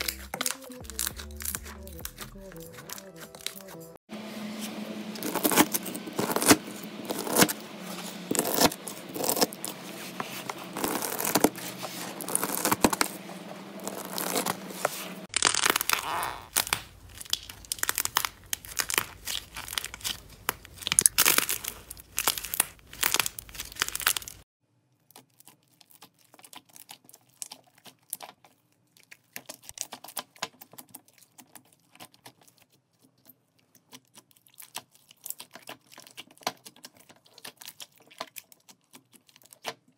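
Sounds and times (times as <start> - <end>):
slime crackling and popping: 0.0 - 2.4, 5.2 - 7.5, 10.5 - 13.1, 13.8 - 14.6, 15.3 - 24.4, 25.0 - 32.8, 33.7 - 39.9
slime tearing: 0.0 - 3.6, 5.2 - 24.4.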